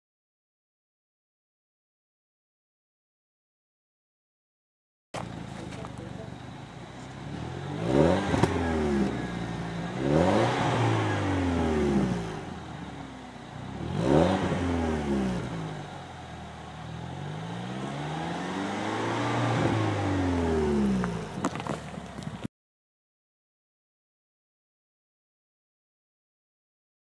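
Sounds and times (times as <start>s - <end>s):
car engine revving: 5.2s - 22.4s.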